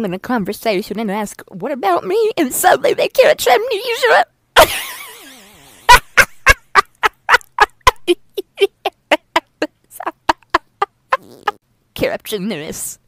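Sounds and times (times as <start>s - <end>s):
woman laughing in rapid bursts: 4.6s - 11.6s.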